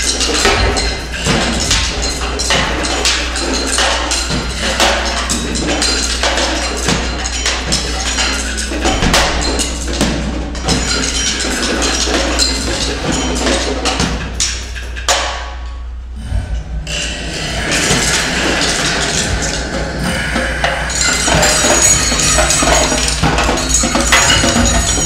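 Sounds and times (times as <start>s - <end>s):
clattering percussion hits: 0.0s - 25.0s
steady low drone: 15.6s - 25.0s.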